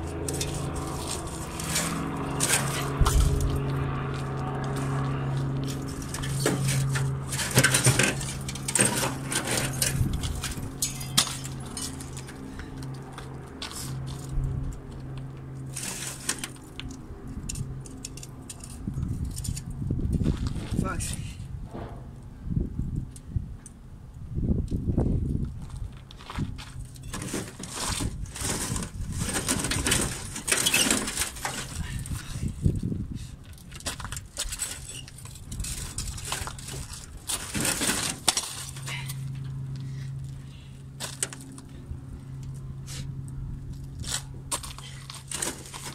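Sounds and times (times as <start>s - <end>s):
burnt metal debris clinking: 5.8s - 13.0s.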